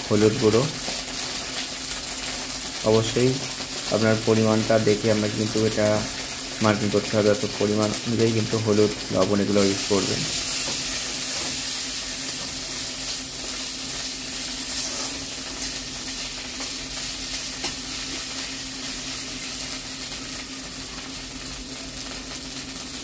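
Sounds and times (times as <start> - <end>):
paste sizzling in hot oil: 0.0 - 23.0
metal spatula scraping: 14.7 - 15.3.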